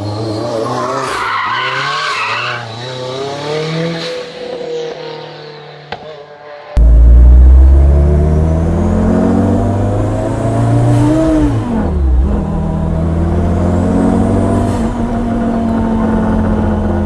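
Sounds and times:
car engine accelerating: 0:06.8 - 0:17.0.

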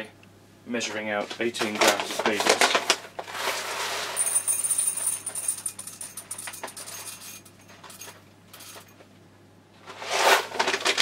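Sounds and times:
paper bag rustling: 0:01.3 - 0:04.4, 0:09.9 - 0:11.0.

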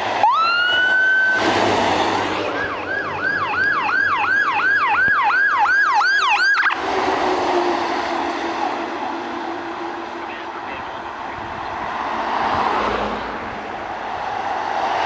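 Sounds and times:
truck and road noise: 0:00.0 - 0:15.0
electronic siren wail and yelp: 0:00.2 - 0:01.4, 0:02.5 - 0:11.4.

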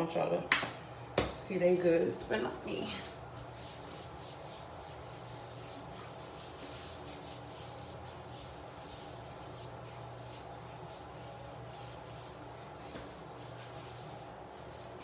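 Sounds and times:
hands rubbing lotion on skin: 0:03.4 - 0:15.0.

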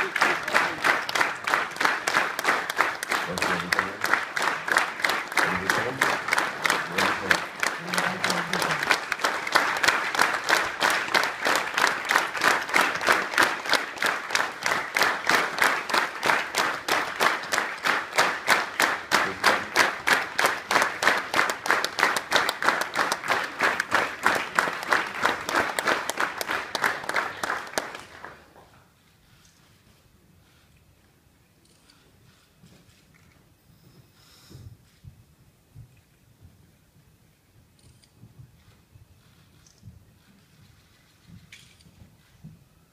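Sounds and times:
audience clapping in unison: 0:00.0 - 0:28.8.

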